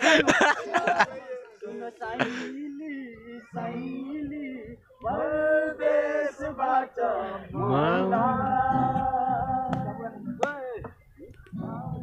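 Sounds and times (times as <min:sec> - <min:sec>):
man singing: 0:00.0 - 0:12.0.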